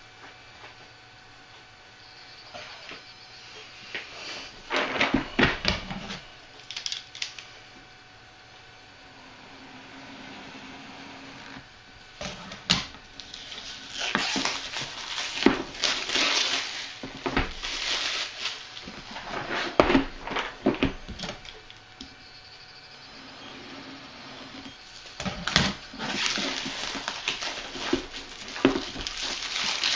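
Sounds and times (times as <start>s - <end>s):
cardboard rustling and scraping: 4.2s - 6.3s, 12.2s - 21.7s, 24.9s - 29.9s.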